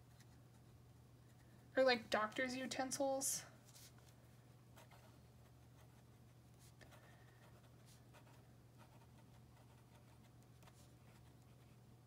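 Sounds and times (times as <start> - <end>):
low steady hum: 0.0 - 12.0
pen nib scratching on paper: 6.9 - 11.6.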